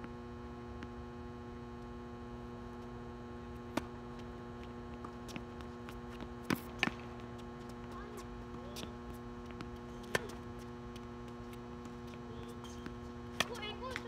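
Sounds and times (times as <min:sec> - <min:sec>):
steady electrical hum: 0:00.0 - 0:14.0
tennis balls struck by rackets: 0:03.6 - 0:04.1, 0:04.9 - 0:14.0
tennis balls bouncing on hard court: 0:03.6 - 0:14.0.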